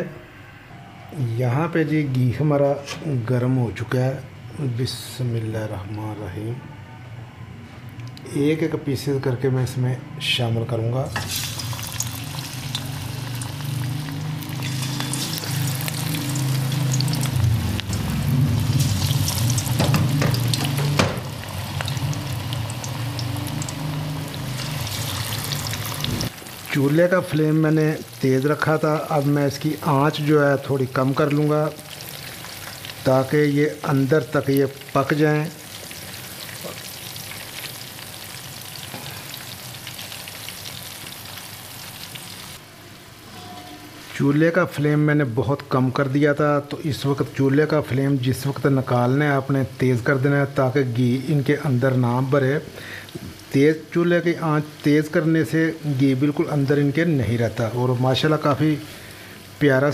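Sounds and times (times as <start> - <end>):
food frying in oil: 11.1 - 42.6, 47.0 - 59.9.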